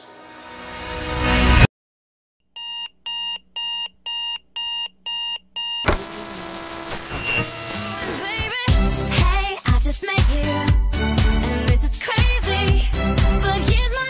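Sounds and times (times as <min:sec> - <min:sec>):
alarm clock beeping: 0:02.6 - 0:05.9
upbeat pop music: 0:07.9 - 0:14.0.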